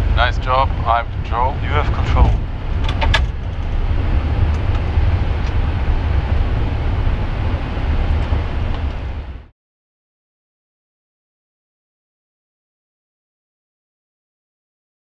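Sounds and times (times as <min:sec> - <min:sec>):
aircraft rumble with hiss: 0:00.0 - 0:09.5.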